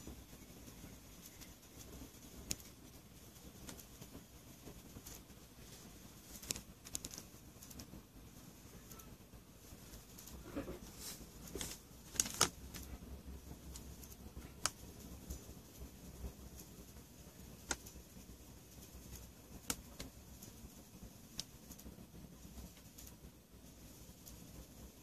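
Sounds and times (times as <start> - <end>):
low steady hum: 0.0 - 25.0
sharp clicks: 6.3 - 7.9.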